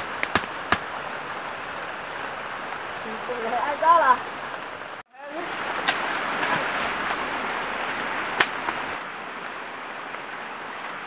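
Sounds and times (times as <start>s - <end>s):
flowing river water: 0.0s - 11.0s
sharp crack: 8.4s - 8.8s.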